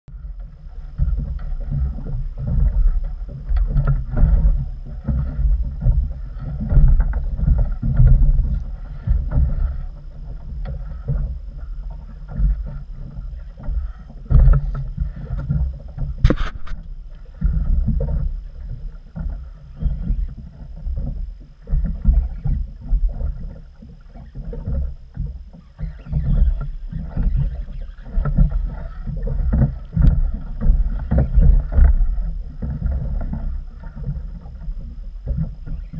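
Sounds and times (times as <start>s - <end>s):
water slapping against boat hull: 0.1s - 35.9s
wind rumble on microphone: 0.1s - 35.9s
sharp click: 16.2s - 16.9s.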